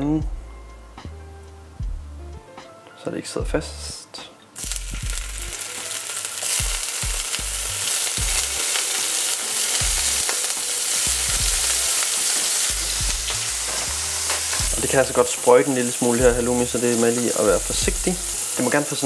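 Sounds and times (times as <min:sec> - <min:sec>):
cheese sizzling in oil: 0:04.6 - 0:19.0.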